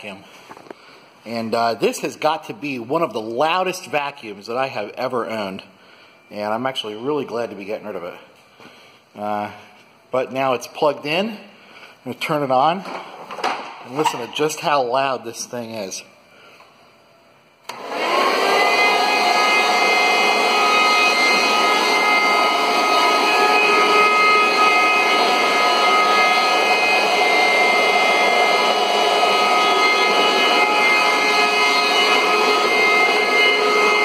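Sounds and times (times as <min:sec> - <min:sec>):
vacuum cleaner motor whining: 0:17.7 - 0:34.0.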